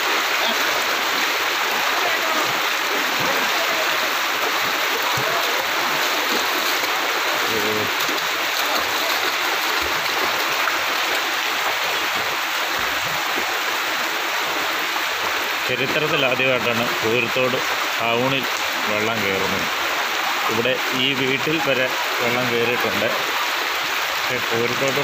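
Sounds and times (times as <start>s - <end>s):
floodwater rushing: 0.0s - 25.0s.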